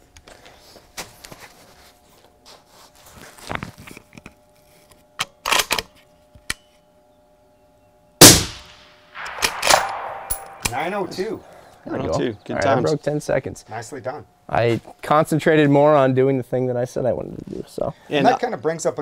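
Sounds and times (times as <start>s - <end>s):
loud rifle shot: 8.2s - 10.9s.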